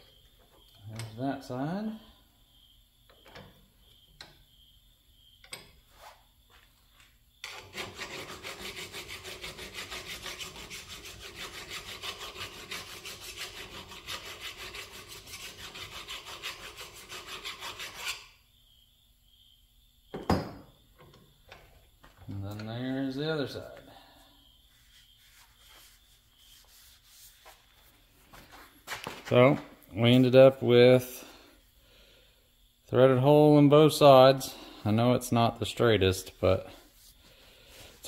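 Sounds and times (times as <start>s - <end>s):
metal file rasping: 7.5s - 18.3s.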